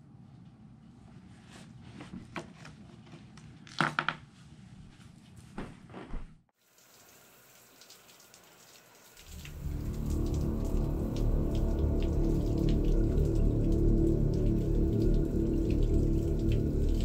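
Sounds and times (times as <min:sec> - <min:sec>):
low droning film score: 0:09.2 - 0:17.0.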